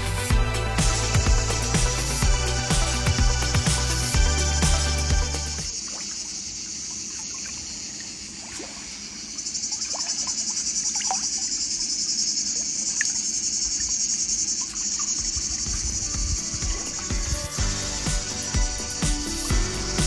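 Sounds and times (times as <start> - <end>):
music: 0.0 - 5.7, 15.7 - 20.0
cicadas buzzing: 0.0 - 20.0.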